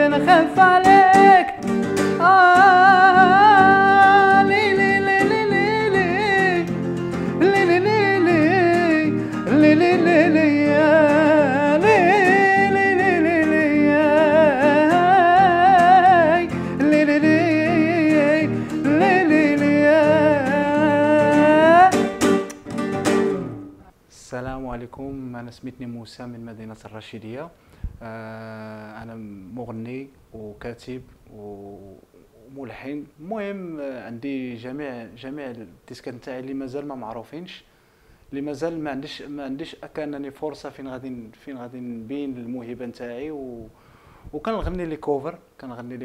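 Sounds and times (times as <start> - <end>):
man singing ornamented notes: 0.0 - 22.1
nylon-string acoustic guitar: 0.0 - 24.0.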